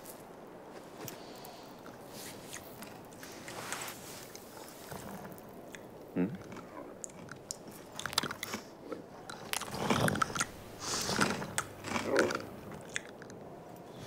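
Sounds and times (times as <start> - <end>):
cartoon crunchy munching: 5.1 - 13.4.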